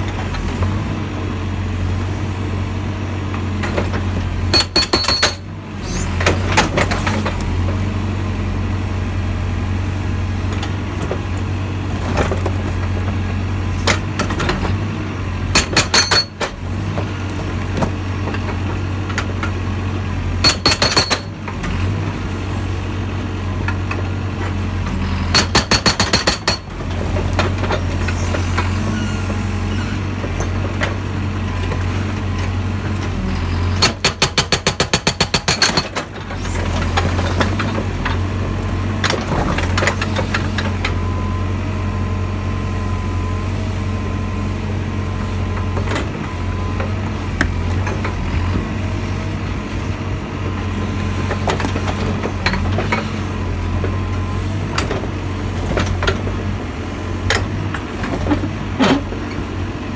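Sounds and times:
diesel engine running: 0.0 - 59.9
hydraulic breaker hammering rock: 4.4 - 7.3, 15.5 - 16.6, 20.4 - 21.4, 25.3 - 27.6, 33.8 - 37.8.

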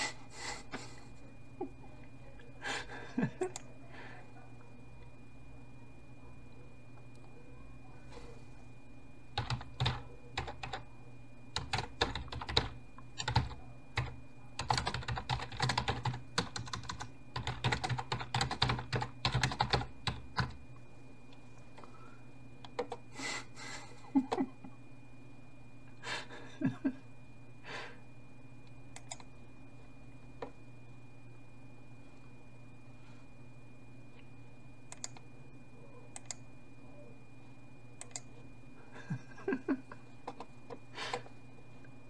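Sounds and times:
low steady hum: 0.0 - 42.0
typing on a computer keyboard: 9.4 - 10.9, 11.5 - 20.6, 22.7 - 23.0, 28.9 - 29.3, 34.9 - 35.3, 36.1 - 36.4, 38.0 - 38.4.

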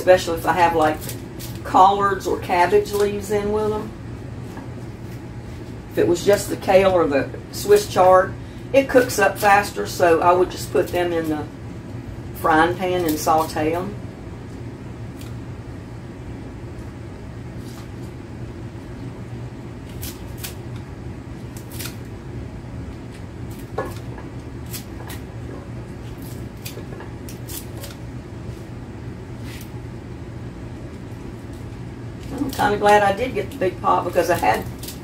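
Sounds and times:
steady low hum: 0.0 - 35.0
scissors snipping leafy greens: 12.9 - 13.6, 19.8 - 20.9, 21.5 - 22.1, 23.1 - 25.3, 26.1 - 28.0, 32.2 - 35.0.

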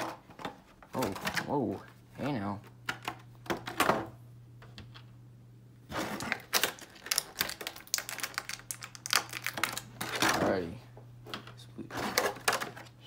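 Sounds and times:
plastic packaging crinkling: 6.0 - 10.4.

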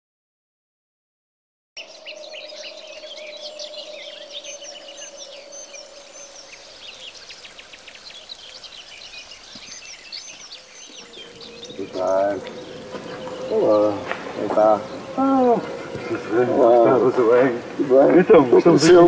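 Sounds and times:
birds chirping and trilling: 1.8 - 19.0
steady low hum: 10.4 - 18.4.

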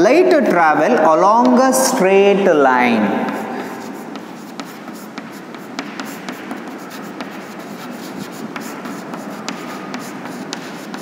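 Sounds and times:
chalk writing on chalkboard: 3.0 - 11.0.

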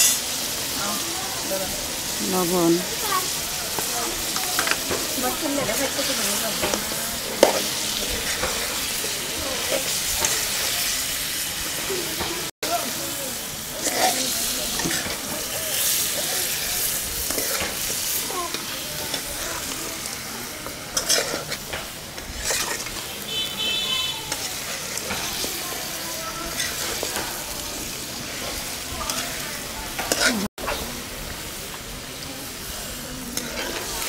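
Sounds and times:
meat sizzling in oil: 0.0 - 34.0
metal spatula scraping pot: 13.8 - 19.3, 20.9 - 25.5, 30.0 - 30.5, 33.4 - 34.0.

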